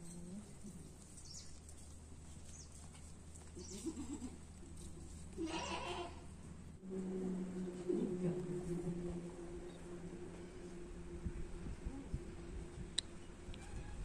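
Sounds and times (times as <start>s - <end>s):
faint low hum: 0.0s - 14.0s
goat bleating: 3.6s - 4.4s, 5.3s - 6.3s.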